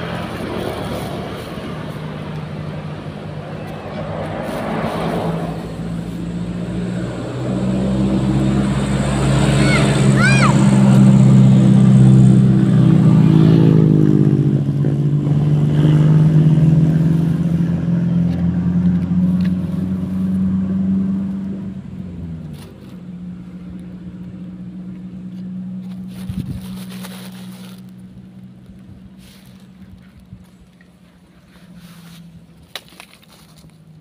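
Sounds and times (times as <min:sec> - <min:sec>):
vehicle engine running: 0:00.0 - 0:34.0.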